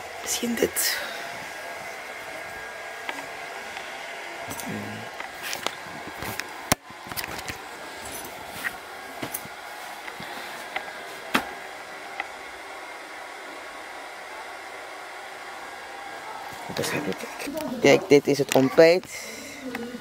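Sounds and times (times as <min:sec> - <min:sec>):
hair dryer running: 0:00.0 - 0:20.0
clothes rustling: 0:04.4 - 0:11.7.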